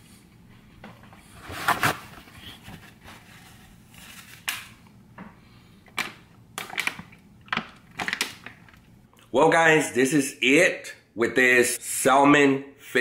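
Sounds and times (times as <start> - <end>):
paper napkin rustling: 1.3 - 4.7
plastic water bottle crinkling: 6.0 - 8.8.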